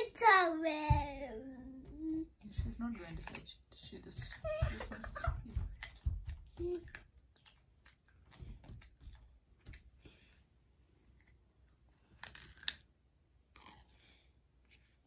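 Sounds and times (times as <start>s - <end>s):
faint clicks and taps: 0.7s - 10.4s.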